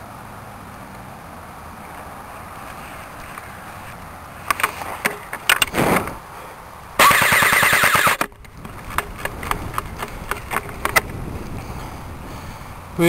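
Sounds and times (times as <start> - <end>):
airsoft rifle full-auto burst: 7.0 - 8.2
sharp clicks: 7.0 - 11.2.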